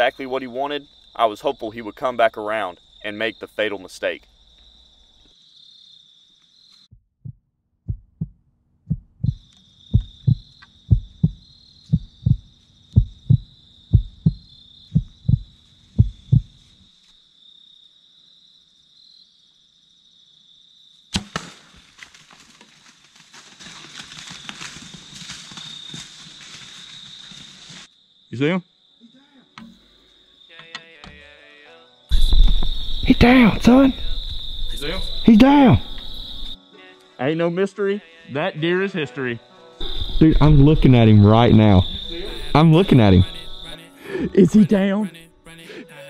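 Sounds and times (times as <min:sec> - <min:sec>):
crickets chirping: 0:00.0 - 0:06.9, 0:09.2 - 0:21.1, 0:21.7 - 0:30.7, 0:31.9 - 0:37.6, 0:39.3 - 0:45.0
heartbeat thuds: 0:06.9 - 0:16.6, 0:32.1 - 0:33.3, 0:39.8 - 0:43.6
bow string snap: 0:21.1 - 0:21.7.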